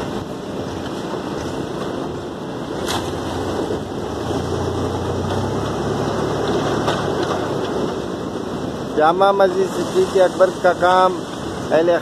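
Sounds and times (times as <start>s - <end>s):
machinery engine humming: 3.1s - 8.5s.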